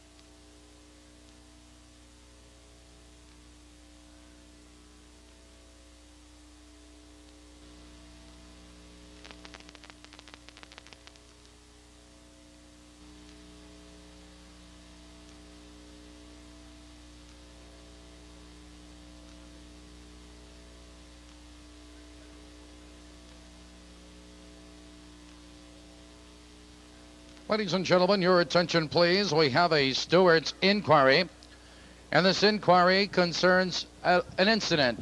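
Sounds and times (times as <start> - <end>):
electrical mains hum: 0.0 - 35.0
low hiss: 0.0 - 35.0
sharp clicks: 9.2 - 11.5.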